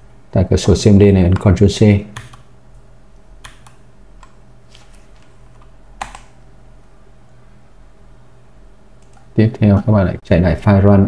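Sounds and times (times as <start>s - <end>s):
faint steady hum: 0.0s - 11.0s
computer keyboard key presses: 2.2s - 2.5s, 3.4s - 4.4s, 6.0s - 6.4s.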